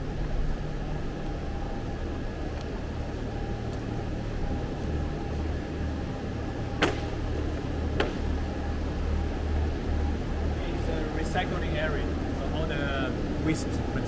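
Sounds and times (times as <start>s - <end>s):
factory mechanical hum: 0.0s - 14.0s
sharp knocks: 6.8s - 7.2s, 8.0s - 8.3s.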